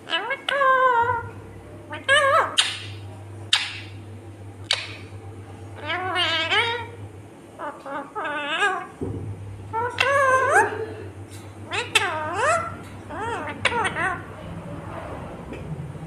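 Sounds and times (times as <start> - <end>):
parakeet squawking and warbling: 0.0 - 7.0, 7.6 - 9.0, 9.6 - 11.0, 11.6 - 14.4
steady low hum: 0.0 - 16.0.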